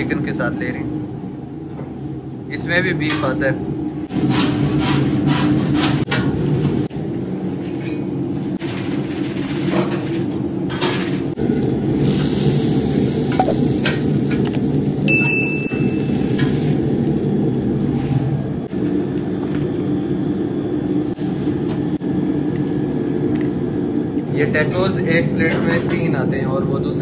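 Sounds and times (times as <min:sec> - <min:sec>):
steady low hum: 0:11.4 - 0:25.5
high chime: 0:15.1 - 0:16.2
spatula scraping on griddle: 0:15.8 - 0:18.3.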